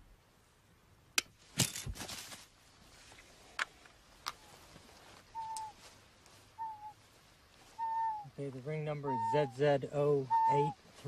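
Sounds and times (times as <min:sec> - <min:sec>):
trap rustling clatter: 0:01.5 - 0:02.5
whistled bird calls: 0:05.3 - 0:05.8, 0:06.6 - 0:07.0, 0:07.8 - 0:10.8.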